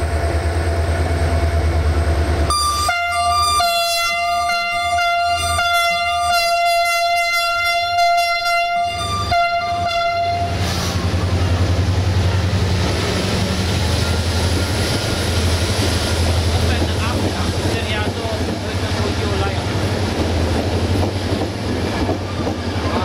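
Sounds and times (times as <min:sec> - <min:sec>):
locomotive horn blasts: 0:02.5 - 0:10.6.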